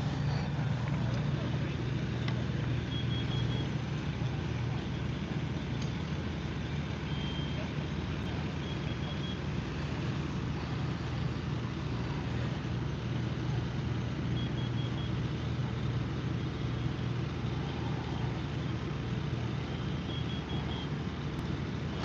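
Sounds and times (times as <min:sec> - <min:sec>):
fire engines rumbling: 0:00.0 - 0:22.0
faint high beeps: 0:01.1 - 0:05.8, 0:06.8 - 0:10.0, 0:14.3 - 0:15.3, 0:16.8 - 0:21.0.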